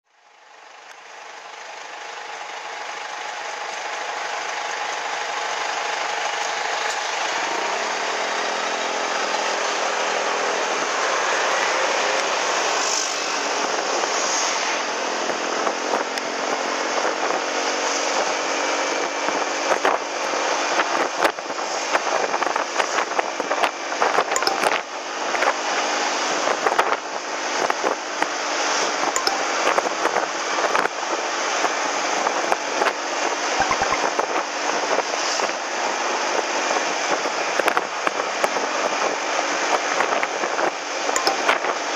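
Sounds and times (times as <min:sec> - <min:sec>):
scooter engine running: 0:00.2 - 0:12.6
road noise: 0:00.2 - 0:41.9.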